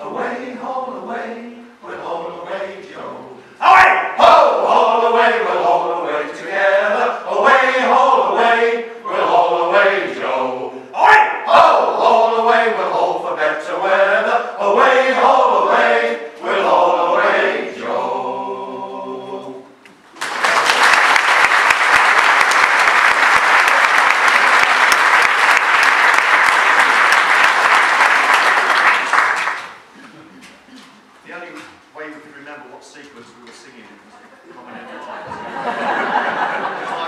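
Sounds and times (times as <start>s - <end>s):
male choir singing a shanty: 0.0s - 19.7s
audience applause: 20.2s - 29.9s.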